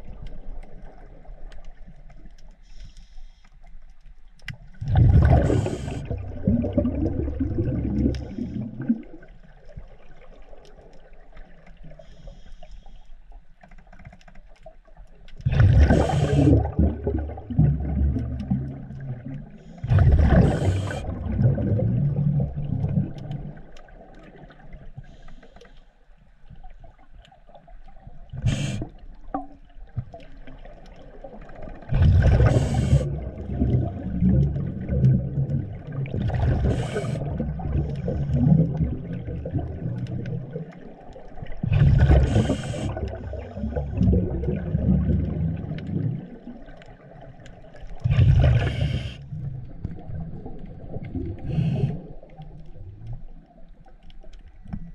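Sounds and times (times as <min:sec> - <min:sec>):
exhaust bubbles rushing: 0:04.8 - 0:09.2, 0:15.4 - 0:19.0, 0:19.8 - 0:23.2, 0:31.9 - 0:40.5, 0:41.6 - 0:46.5
diver inhaling through regulator: 0:05.2 - 0:06.3, 0:15.7 - 0:16.8, 0:19.6 - 0:21.2, 0:28.4 - 0:29.0, 0:32.2 - 0:33.4, 0:36.5 - 0:38.4, 0:41.7 - 0:44.0, 0:48.0 - 0:49.4, 0:51.4 - 0:52.3.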